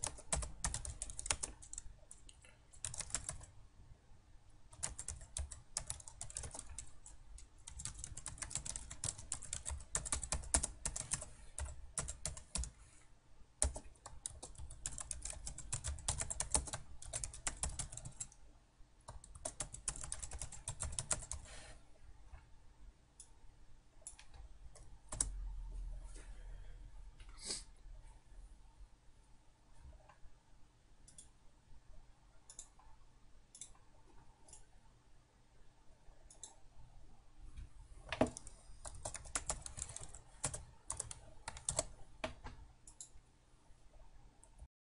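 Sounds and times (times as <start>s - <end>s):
laptop keyboard typing: 0.0s - 3.5s, 4.7s - 12.8s, 13.6s - 18.4s, 19.1s - 21.6s, 24.0s - 25.4s, 38.2s - 43.1s.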